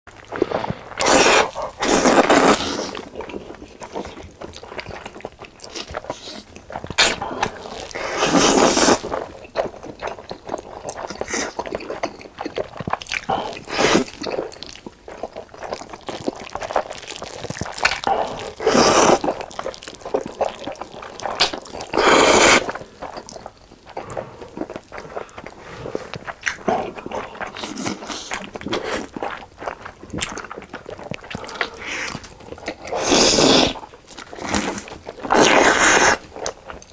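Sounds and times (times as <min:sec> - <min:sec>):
wet chewing and smacking: 0:00.1 - 0:36.9
loud noodle slurps: 0:00.3 - 0:03.0, 0:07.0 - 0:09.2, 0:13.6 - 0:14.2, 0:16.6 - 0:20.7, 0:21.4 - 0:22.8, 0:31.3 - 0:36.3.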